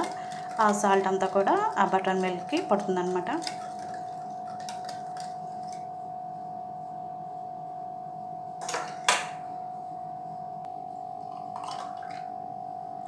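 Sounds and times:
whisk ticking against a bowl: 0.0s - 5.9s
faint hum: 0.0s - 13.0s.

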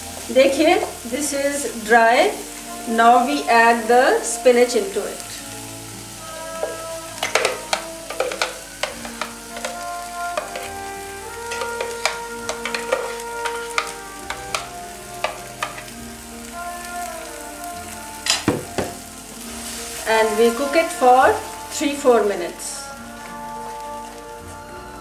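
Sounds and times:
puree sizzling in a pan: 0.0s - 25.0s
spatula knocking and scraping pan: 6.4s - 15.9s, 18.2s - 19.0s.

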